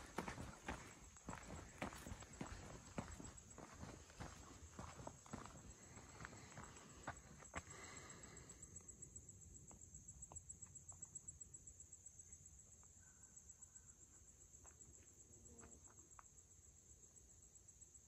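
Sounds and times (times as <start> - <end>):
insect trill: 0.0 - 18.0.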